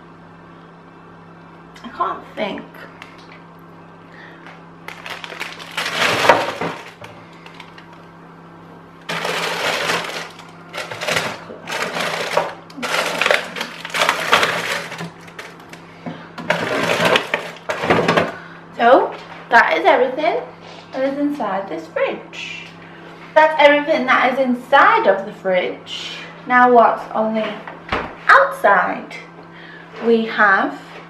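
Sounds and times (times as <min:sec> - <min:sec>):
plastic packaging crinkling: 0:04.8 - 0:08.1, 0:09.1 - 0:15.8.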